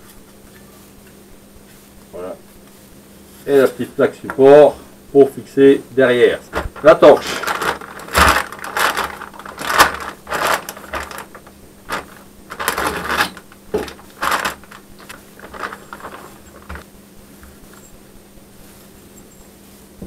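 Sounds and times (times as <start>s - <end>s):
plastic bag crinkling: 6.4s - 16.8s.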